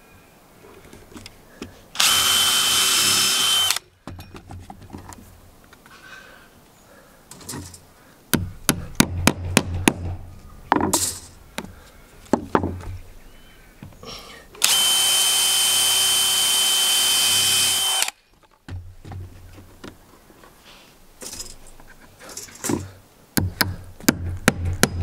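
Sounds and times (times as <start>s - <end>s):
cordless drill running: 2.0s - 3.8s, 14.6s - 18.2s.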